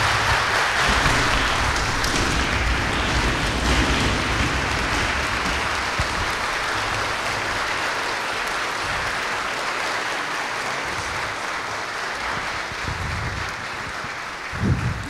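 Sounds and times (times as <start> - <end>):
audience applauding: 0.0 - 15.0.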